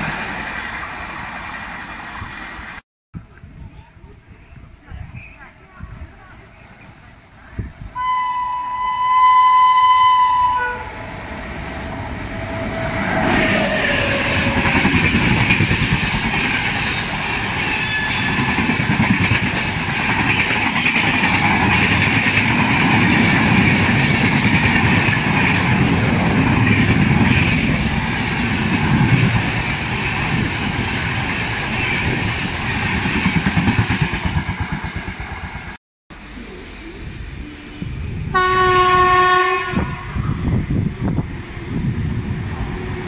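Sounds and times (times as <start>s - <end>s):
train rushing past: 0.0s - 2.8s, 7.5s - 43.0s
locomotive horn: 8.0s - 11.1s, 38.3s - 40.2s.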